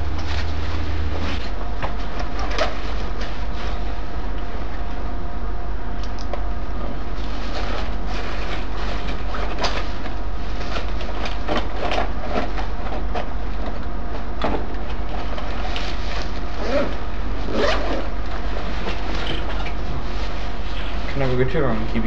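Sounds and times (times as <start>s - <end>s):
steady loud hum: 0.0s - 22.0s
rustling in a fabric backpack: 15.6s - 19.1s
zipper: 16.2s - 19.0s.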